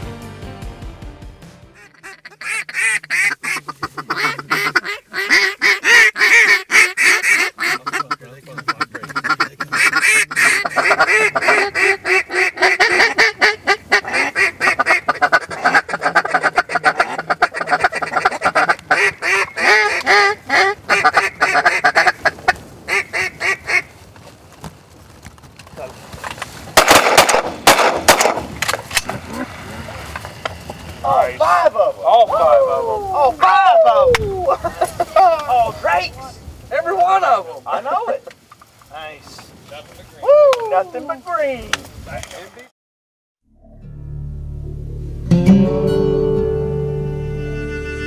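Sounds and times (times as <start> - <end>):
duck quacking: 1.8 - 23.9.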